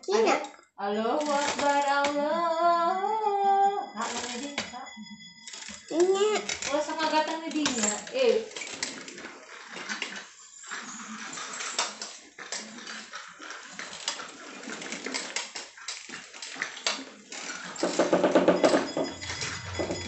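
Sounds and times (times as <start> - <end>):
bicycle rattling over tile floor: 0.6 - 20.0.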